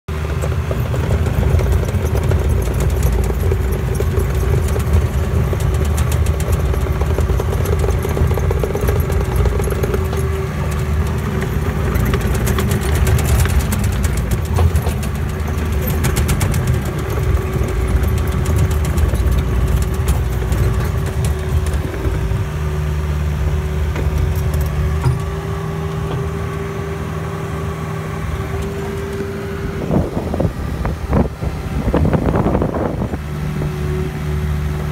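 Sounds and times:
diesel engine running: 0:00.1 - 0:34.9
rattling and clicking: 0:00.2 - 0:22.5, 0:23.8 - 0:26.4.

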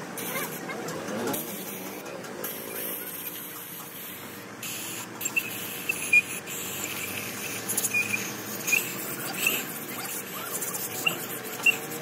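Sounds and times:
short high squeaks: 0:01.3 - 0:12.0
pry bar scraping metal: 0:04.6 - 0:12.0.

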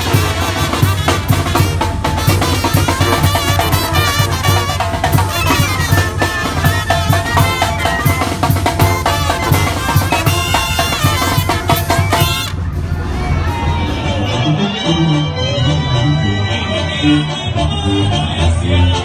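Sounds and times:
clarinet: 0:00.0 - 0:12.7, 0:13.8 - 0:19.0
bass drum beat: 0:00.0 - 0:14.3
snare drum and cymbals: 0:00.0 - 0:14.3
brass band playing dance tune: 0:00.0 - 0:19.0
trumpet: 0:00.0 - 0:19.0
sousaphone: 0:02.4 - 0:12.5.

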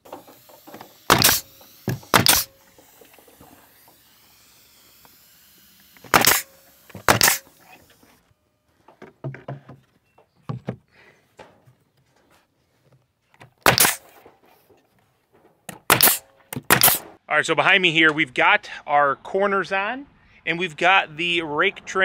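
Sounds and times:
nail gun shots: 0:00.1 - 0:04.0, 0:06.0 - 0:07.6, 0:13.6 - 0:14.2, 0:15.7 - 0:17.2.

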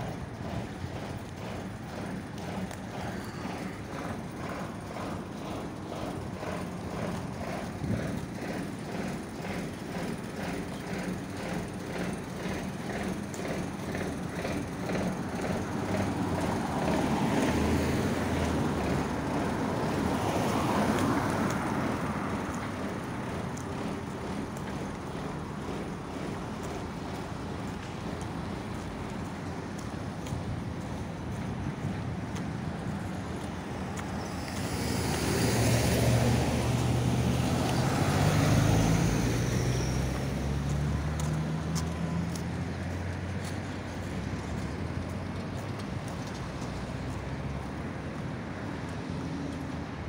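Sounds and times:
car passing: 0:00.0 - 0:50.0
footsteps on asphalt: 0:00.0 - 0:50.0.

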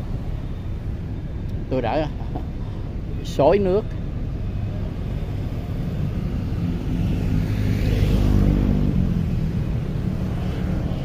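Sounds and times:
street traffic rumbling: 0:00.0 - 0:11.0
vehicle engine passing close: 0:05.2 - 0:11.0.

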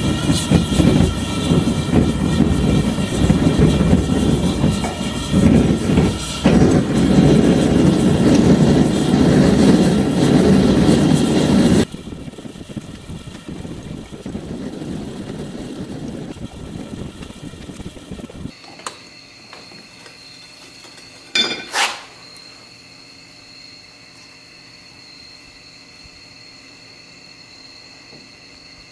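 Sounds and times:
gas burner rushing: 0:00.0 - 0:19.0.

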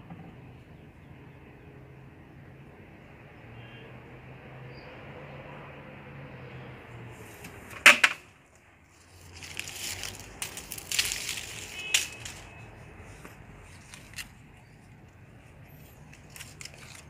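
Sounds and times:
leaves rustling against microphone: 0:08.5 - 0:17.0.

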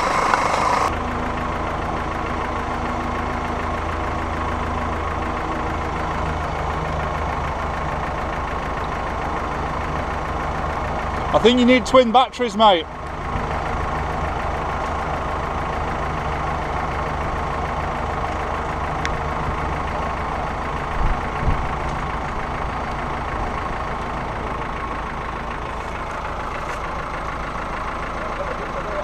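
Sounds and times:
electric winch: 0:00.0 - 0:01.4
engine idling: 0:00.0 - 0:29.0.

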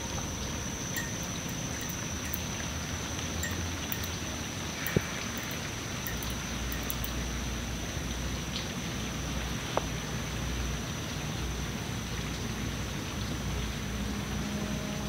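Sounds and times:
sharp ticks: 0:00.1 - 0:07.4.

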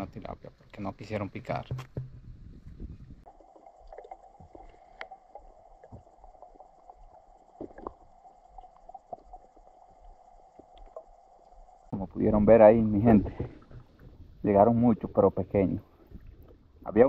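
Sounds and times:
underwater low hum: 0:00.0 - 0:17.0
small underwater clicks and pops: 0:00.4 - 0:11.9.

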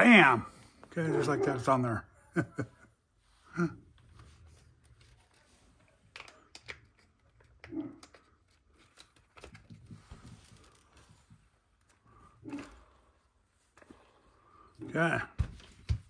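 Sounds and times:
hands handling small parts: 0:04.0 - 0:12.0.

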